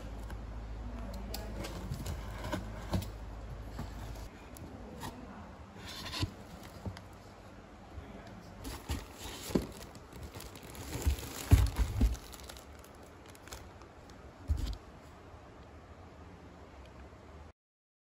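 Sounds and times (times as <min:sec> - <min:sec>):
cardboard rustling: 0:01.4 - 0:04.3, 0:05.0 - 0:07.2, 0:08.6 - 0:13.8, 0:14.4 - 0:14.9
plastic wrap crinkling: 0:08.6 - 0:14.8.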